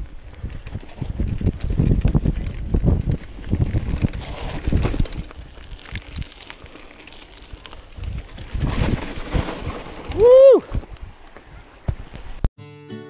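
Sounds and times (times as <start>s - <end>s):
mountain bike rattling over dirt: 0.0s - 12.4s.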